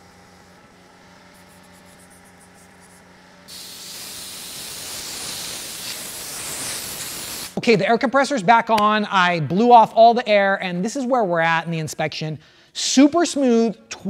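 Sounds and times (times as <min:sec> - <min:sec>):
compressed air hissing: 0:03.5 - 0:07.6.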